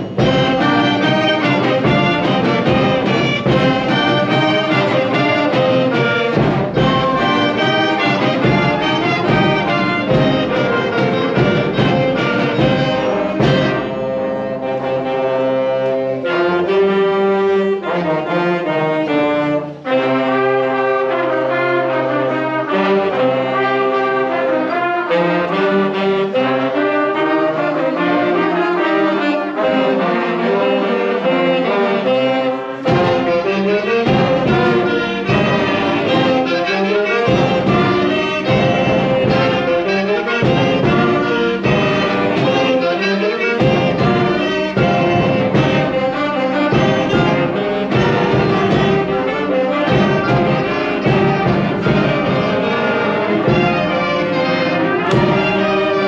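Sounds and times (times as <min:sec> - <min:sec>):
percussion beat: 0:00.0 - 0:14.8, 0:32.8 - 0:56.0
concert band brass and reeds: 0:00.0 - 0:56.0.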